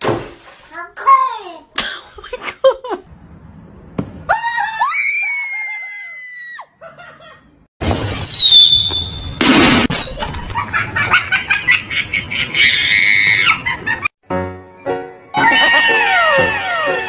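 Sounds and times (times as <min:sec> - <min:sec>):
shrill cry sliding downward: 0:04.3 - 0:06.7, 0:15.3 - 0:17.0.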